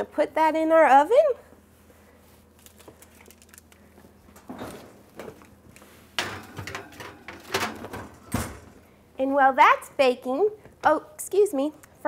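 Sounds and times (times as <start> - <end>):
oven door shutting: 6.2 - 8.8.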